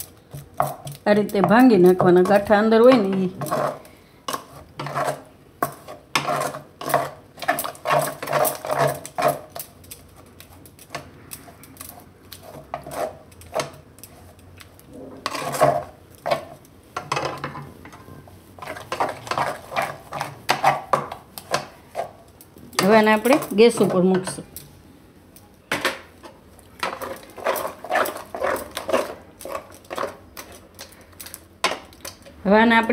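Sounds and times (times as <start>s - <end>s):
metal utensil scraping and clinking: 0.3s - 10.0s, 15.2s - 21.1s, 25.7s - 30.8s.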